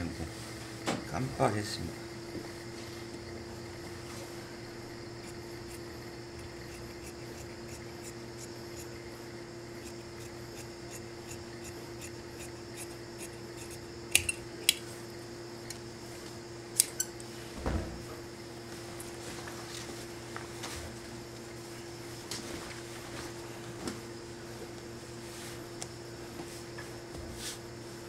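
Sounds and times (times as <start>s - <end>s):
shears snipping fabric: 4.8s - 9.0s, 9.7s - 14.8s
sharp clicks of shear blades: 16.8s - 17.1s
soft thump: 17.6s - 18.0s.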